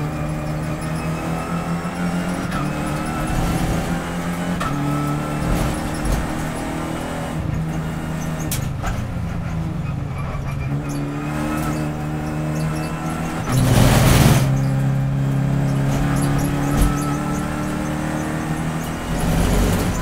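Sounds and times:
race car engine revving: 0:00.0 - 0:20.0.

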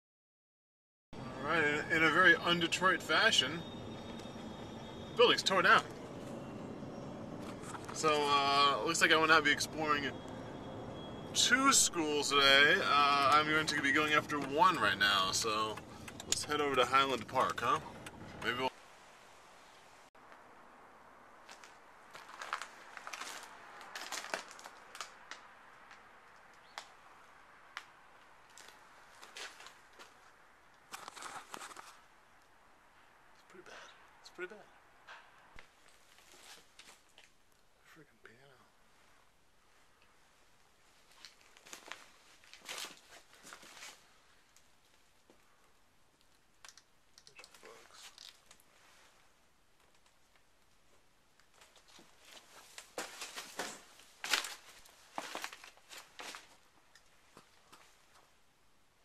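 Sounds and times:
crackles and scuffs: 0:21.3 - 0:32.6, 0:35.6 - 0:37.7, 0:38.9 - 0:45.6, 0:46.2 - 0:58.4
footsteps crunching on debris: 0:21.4 - 0:26.9, 0:28.4 - 0:30.3, 0:40.9 - 0:44.1, 0:51.4 - 0:56.7.

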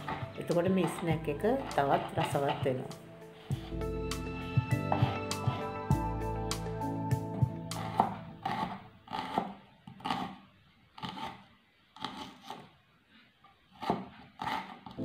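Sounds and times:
knife chopping on wooden board: 0:00.0 - 0:02.8, 0:04.8 - 0:05.7, 0:07.7 - 0:10.4, 0:13.8 - 0:15.0.

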